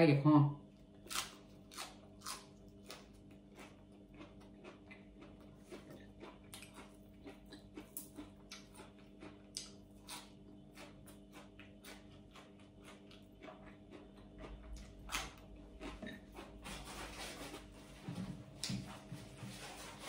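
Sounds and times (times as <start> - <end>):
chewing with wet mouth clicks: 1.1 - 16.6.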